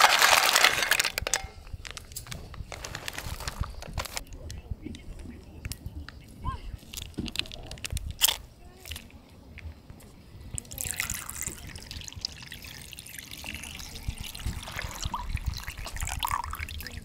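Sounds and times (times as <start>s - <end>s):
water pouring and trickling: 10.6s - 17.0s.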